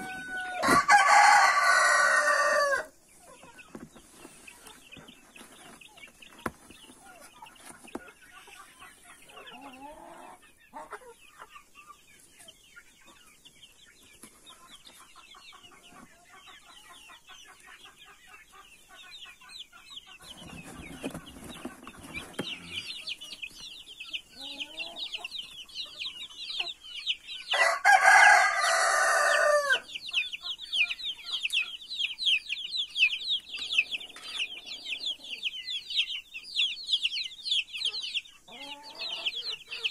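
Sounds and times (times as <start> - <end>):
adult chicken call: 0.0 - 3.0, 27.5 - 29.9, 38.5 - 39.9
chicks peeping: 0.0 - 39.9.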